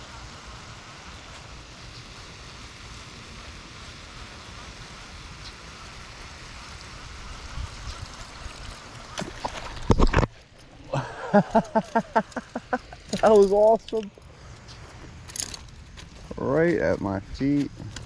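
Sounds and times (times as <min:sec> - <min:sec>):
wind on microphone: 0:07.1 - 0:08.7.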